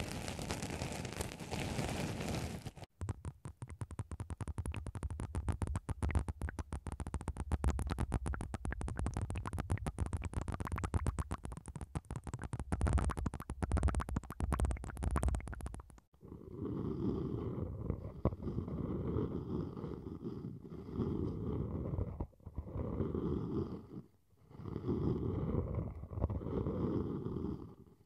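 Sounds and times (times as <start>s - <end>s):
wet crackles and pops: 0.0s - 16.1s.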